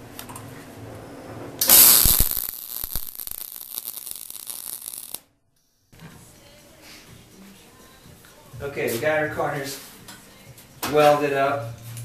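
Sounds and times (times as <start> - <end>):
welding arc crackling: 1.6 - 5.2.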